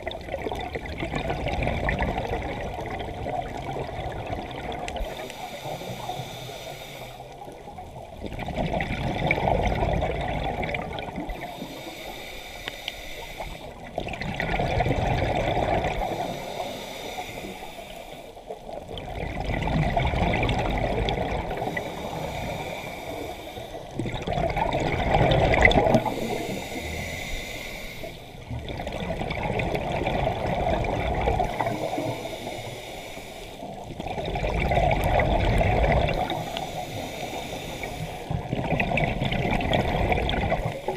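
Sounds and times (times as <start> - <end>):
diver exhaling gurgling bubbles: 0.0 - 6.3, 7.4 - 11.9, 13.7 - 16.8, 18.6 - 32.9, 33.7 - 40.9
diver inhaling through regulator: 5.0 - 7.4, 11.3 - 13.8, 15.8 - 18.4, 21.4 - 24.0, 25.7 - 28.5, 31.4 - 33.9, 36.0 - 38.5.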